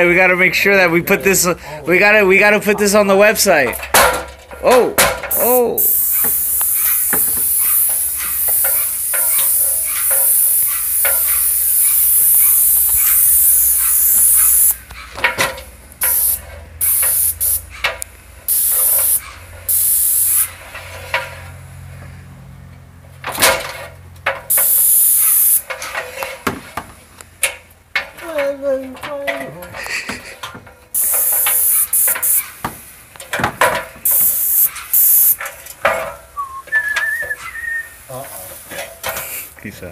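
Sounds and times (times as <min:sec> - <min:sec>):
paint spray gun hissing: 0:05.3 - 0:14.8, 0:16.0 - 0:17.7, 0:18.5 - 0:20.6, 0:24.5 - 0:25.6, 0:31.0 - 0:32.6, 0:34.0 - 0:35.4.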